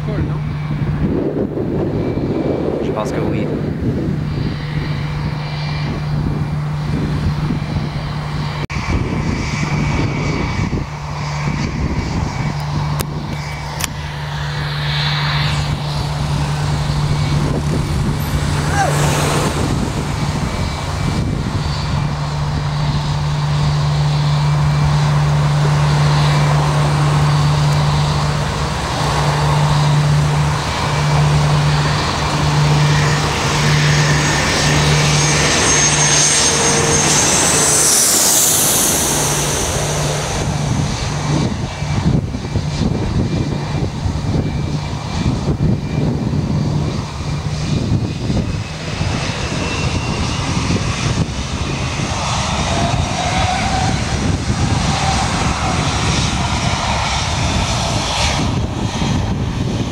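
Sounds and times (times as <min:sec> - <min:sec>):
jet airliner passing overhead: 0:00.0 - 0:59.9
rough fluctuating rumble: 0:13.9 - 0:43.2.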